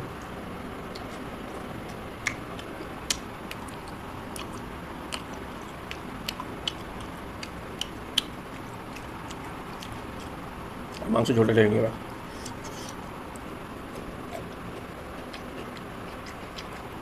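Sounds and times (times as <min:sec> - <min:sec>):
man chewing food: 0:00.0 - 0:11.1, 0:12.0 - 0:17.0
mouth clicks and smacks: 0:02.2 - 0:10.0.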